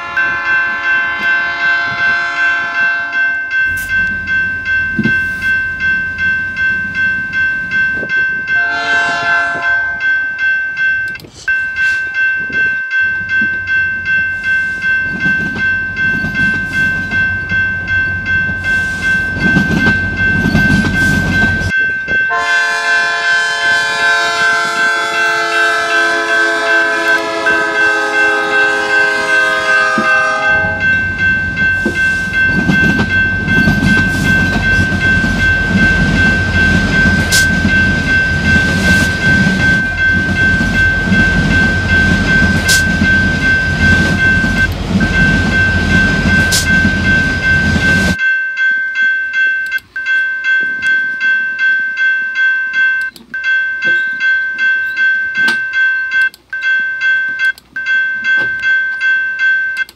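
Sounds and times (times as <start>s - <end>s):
train horn blasts: 0.0s - 3.4s, 8.6s - 10.1s, 22.3s - 31.1s.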